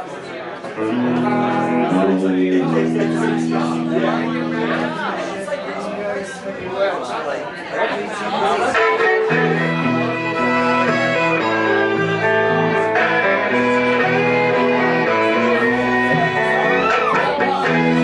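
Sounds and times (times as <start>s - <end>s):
fiddle: 0.8s - 5.3s, 8.4s - 18.0s
electric guitar: 0.8s - 6.2s, 8.7s - 18.0s
walking bass line: 0.9s - 5.5s.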